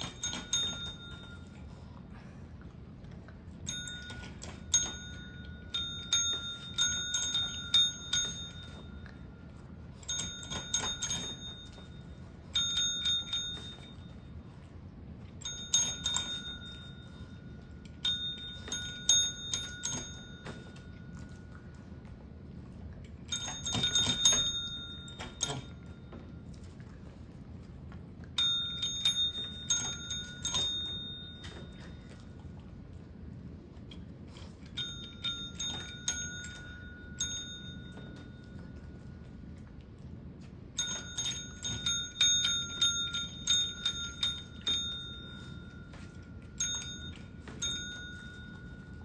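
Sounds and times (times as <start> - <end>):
tap bells dinging: 0.0 - 1.6, 3.7 - 9.2, 10.0 - 14.2, 17.8 - 21.3, 23.3 - 26.4, 28.4 - 32.1, 40.8 - 49.0.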